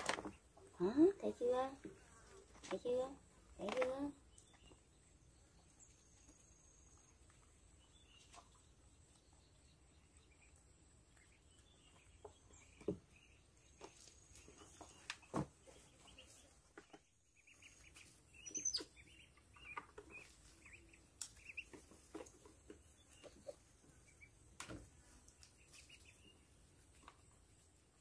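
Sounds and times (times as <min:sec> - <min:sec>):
faint high chirps: 0:17.2 - 0:21.7.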